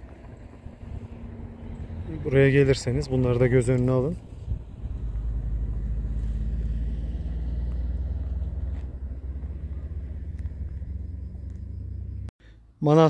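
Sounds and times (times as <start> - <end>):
wind buffeting microphone: 0.0 - 6.5.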